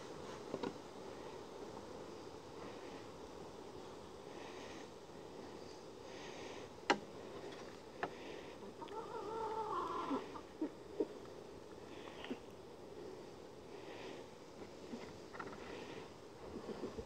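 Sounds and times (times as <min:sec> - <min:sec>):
faint steady hiss: 0:00.0 - 0:17.0
animal call: 0:08.8 - 0:11.1.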